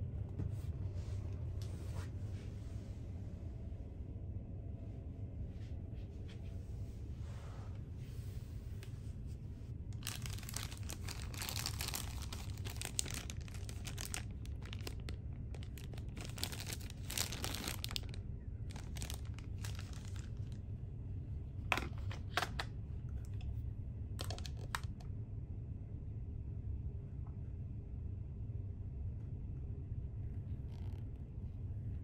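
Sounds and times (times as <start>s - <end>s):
steady low hum: 0.0s - 32.0s
plastic packet crinkling: 10.0s - 20.6s, 24.2s - 25.0s.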